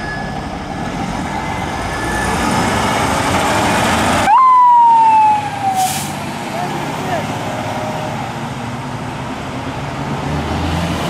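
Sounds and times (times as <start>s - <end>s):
diesel engine passing: 0.0s - 11.0s
siren blast sliding down: 4.2s - 6.2s.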